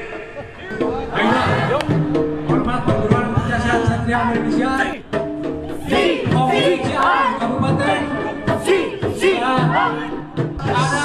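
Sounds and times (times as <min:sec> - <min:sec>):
voices singing: 0:00.0 - 0:11.0.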